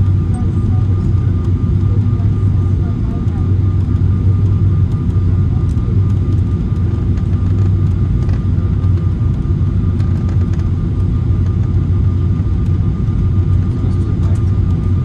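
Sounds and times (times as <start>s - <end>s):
airplane cabin engine drone: 0.0s - 15.0s
faint steady whine: 0.0s - 15.0s.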